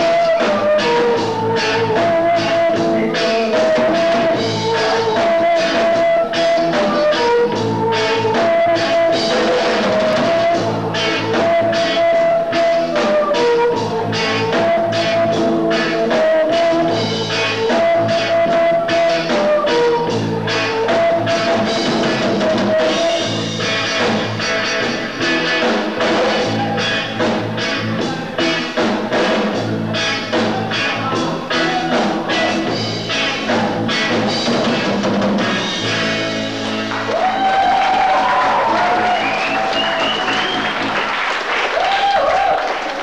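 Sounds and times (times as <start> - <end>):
person singing: 0.0 - 23.4, 30.0 - 34.0
electric guitar: 0.0 - 41.1
rock band playing: 0.0 - 43.0
drum beat: 21.0 - 41.1.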